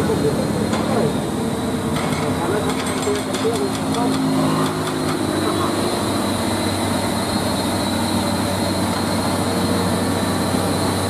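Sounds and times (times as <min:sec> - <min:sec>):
truck diesel engine passing: 0:03.8 - 0:11.0.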